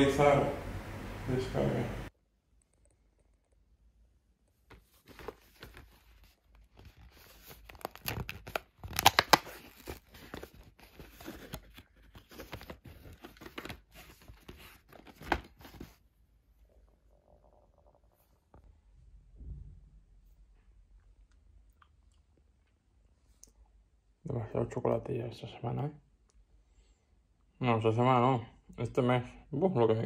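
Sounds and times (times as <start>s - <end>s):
cardboard tearing: 6.8s - 15.6s.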